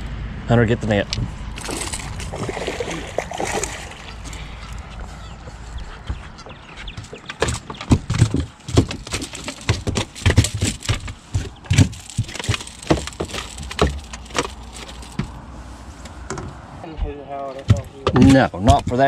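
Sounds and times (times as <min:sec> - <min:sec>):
fish flopping in a net: 0:01.5 - 0:04.6, 0:07.5 - 0:15.4.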